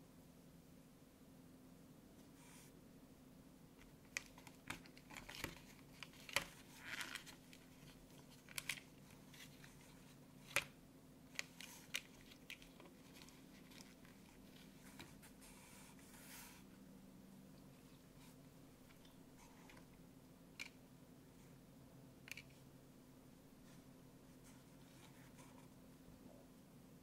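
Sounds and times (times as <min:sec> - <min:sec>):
plastic tray clicking and crinkling: 0:03.8 - 0:14.4
soft rustle: 0:03.8 - 0:16.8, 0:23.6 - 0:25.9.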